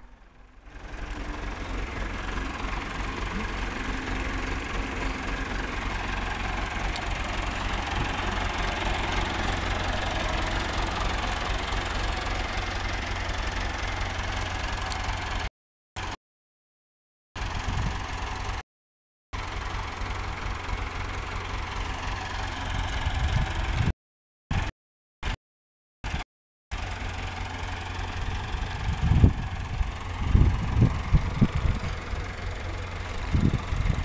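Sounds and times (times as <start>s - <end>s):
tractor diesel engine idling: 0.0s - 16.2s, 17.4s - 18.6s, 19.4s - 23.9s, 26.0s - 34.0s.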